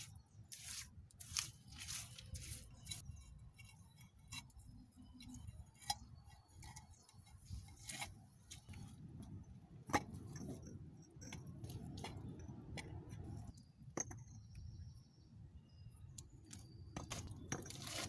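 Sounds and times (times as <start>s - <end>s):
bricks clinking and knocking: 17.0s - 18.0s.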